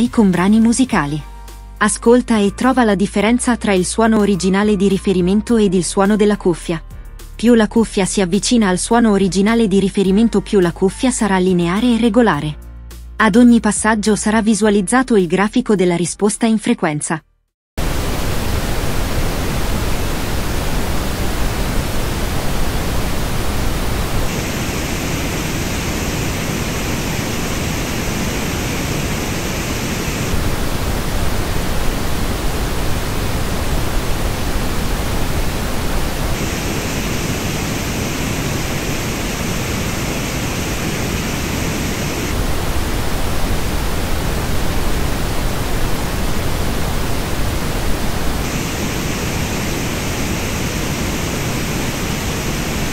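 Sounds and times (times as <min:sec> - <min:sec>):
pink noise hiss: 0:17.8 - 0:52.9.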